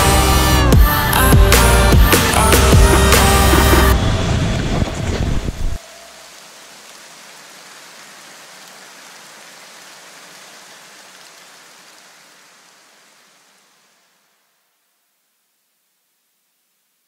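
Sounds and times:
steady hiss: 5.7s - 17.0s.

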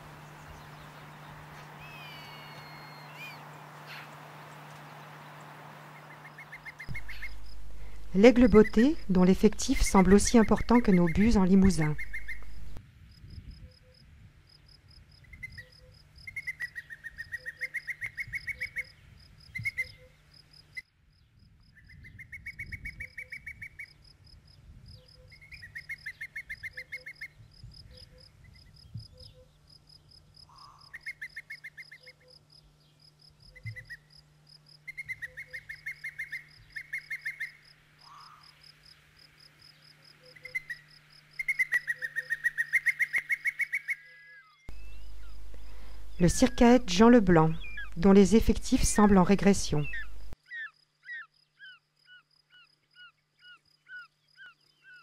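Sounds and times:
high trilling calls: 0.0s - 12.8s, 40.1s - 50.4s.

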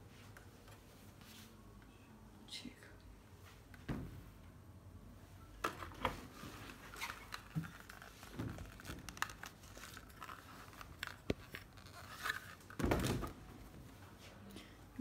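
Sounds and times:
fabric rustling and crinkling: 5.9s - 14.4s.

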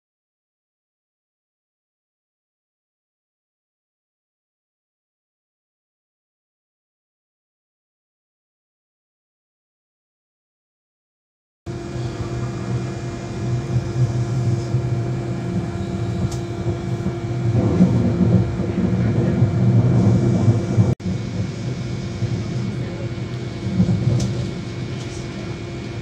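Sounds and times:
steady train hum: 11.7s - 26.0s
train wheels rumbling on rail: 11.7s - 26.0s.

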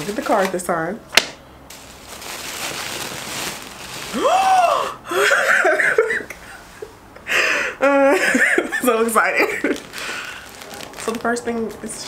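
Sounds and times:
paper and packaging rustling: 0.0s - 0.6s, 1.7s - 4.6s, 9.0s - 12.0s
woman's excited ooh: 4.1s - 5.0s.

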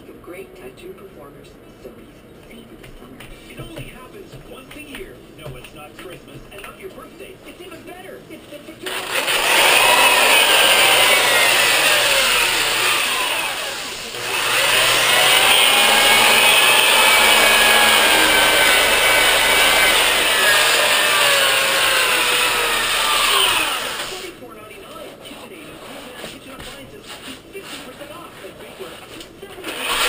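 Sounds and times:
sander motor whine and grinding: 8.9s - 24.3s, 29.6s - 30.0s.

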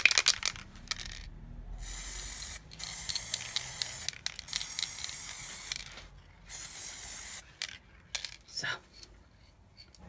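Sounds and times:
aerosol spray can hissing: 1.8s - 5.8s, 6.5s - 7.4s.

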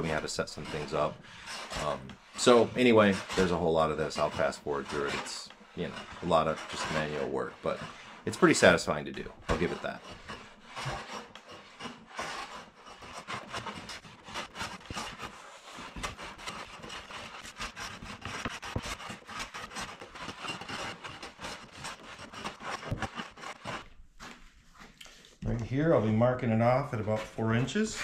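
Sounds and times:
hand plane scraping wood: 0.0s - 24.5s, 27.0s - 28.0s.

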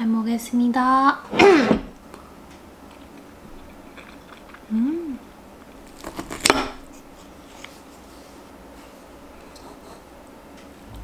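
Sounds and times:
quiet chewing: 2.8s - 6.3s
person humming: 4.7s - 5.2s.

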